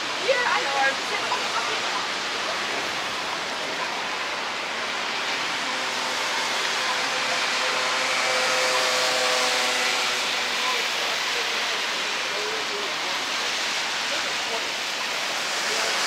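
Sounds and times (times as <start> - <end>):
rain hissing: 0.0 - 16.0
traffic on wet street: 0.0 - 16.0
vehicle humming: 0.0 - 16.0.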